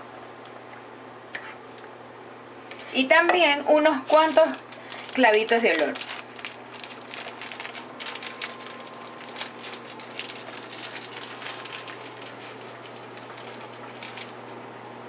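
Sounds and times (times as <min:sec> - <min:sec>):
steady low hum: 0:00.0 - 0:15.0
plastic packet crinkling: 0:04.0 - 0:14.6.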